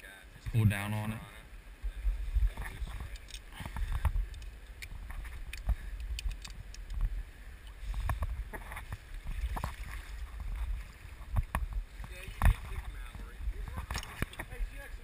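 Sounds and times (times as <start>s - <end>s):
rumble of water: 0.3s - 15.0s
river water sloshing and lapping: 2.1s - 15.0s.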